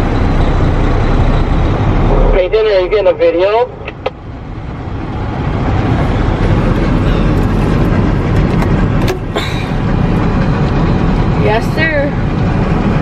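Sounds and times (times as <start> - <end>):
heavy engines and machinery rumble: 0.0 - 13.0.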